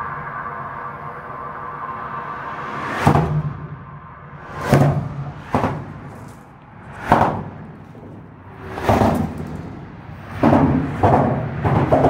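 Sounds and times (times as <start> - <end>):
tyre noise of approaching car: 2.2 - 12.0
tyres knocking over expansion joint: 4.7 - 12.0.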